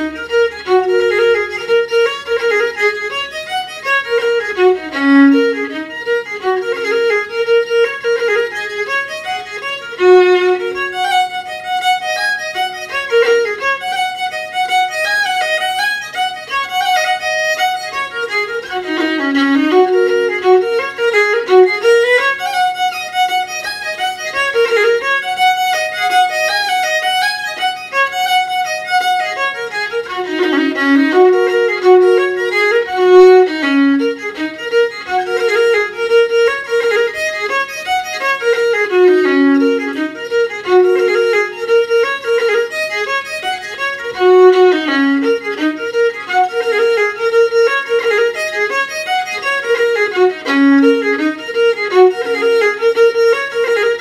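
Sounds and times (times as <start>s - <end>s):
solo fiddle playing a quick tune: 0.0s - 54.0s.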